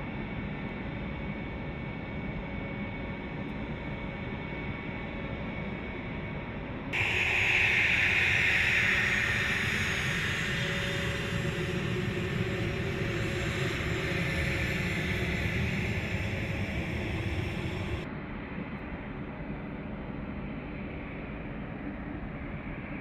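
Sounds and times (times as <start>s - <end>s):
jet engine whine: 7.0s - 18.7s.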